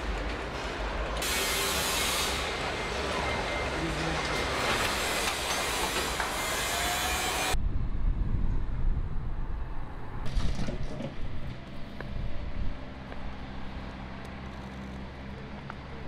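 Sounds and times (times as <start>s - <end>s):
road traffic rumble: 7.4s - 16.0s.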